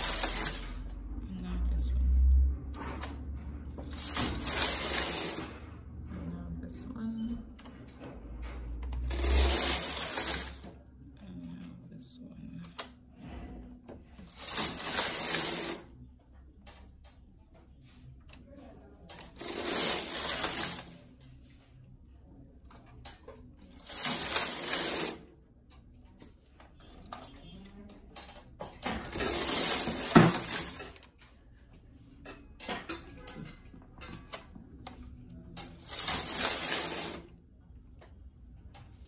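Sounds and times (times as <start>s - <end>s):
knitting machine carriage sliding: 0.0s - 1.1s, 1.7s - 6.3s, 7.6s - 10.8s, 12.7s - 16.0s, 17.5s - 21.7s, 22.7s - 31.3s, 32.2s - 37.4s.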